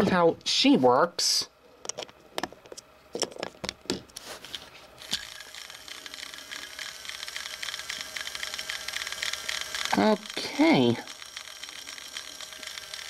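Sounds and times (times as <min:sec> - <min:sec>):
toy train motor whirring: 0:05.0 - 0:13.0.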